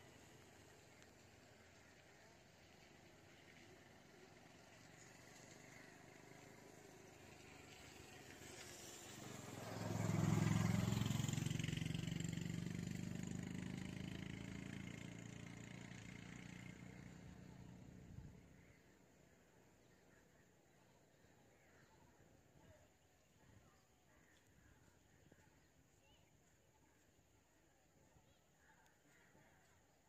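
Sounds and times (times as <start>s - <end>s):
motor vehicle passing by: 0.0s - 20.0s.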